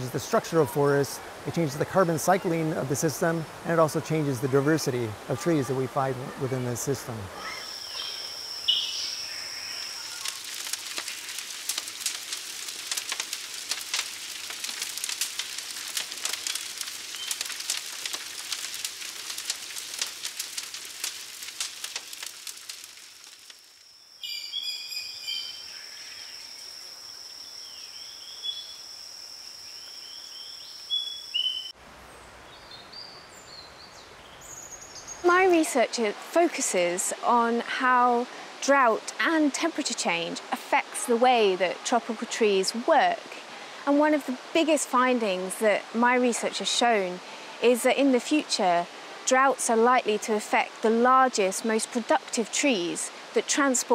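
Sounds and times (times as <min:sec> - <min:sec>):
fire crackling: 0:00.0 - 0:27.9, 0:35.1 - 0:53.9
birds chirping: 0:01.5 - 0:11.2, 0:16.4 - 0:17.8, 0:24.2 - 0:28.8, 0:29.7 - 0:35.6.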